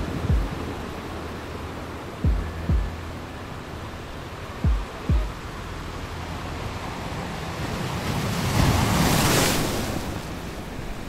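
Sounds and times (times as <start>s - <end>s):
steady surf hiss: 0.0s - 11.0s
wave breaking on beach: 3.1s - 11.0s.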